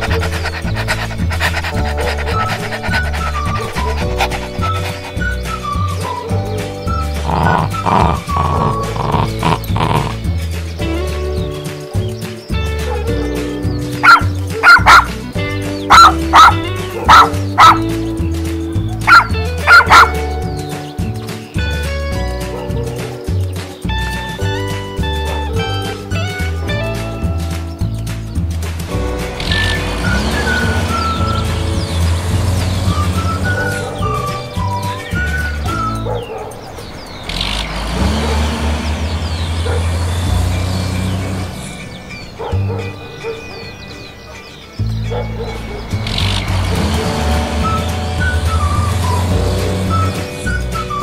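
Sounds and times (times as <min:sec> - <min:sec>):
background music with bass line: 0:00.0 - 0:51.0
truck engine humming: 0:00.0 - 0:51.0
dog barking: 0:14.0 - 0:15.2, 0:15.9 - 0:17.9, 0:18.9 - 0:20.3, 0:36.0 - 0:36.6, 0:39.6 - 0:39.9, 0:42.3 - 0:44.4, 0:45.1 - 0:46.0.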